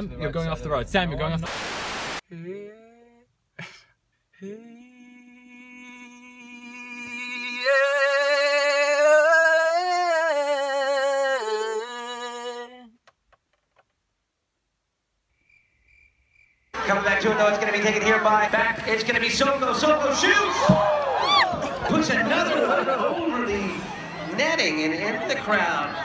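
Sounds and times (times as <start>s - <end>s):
person singing long notes: 2.3s - 3.3s, 4.4s - 13.0s.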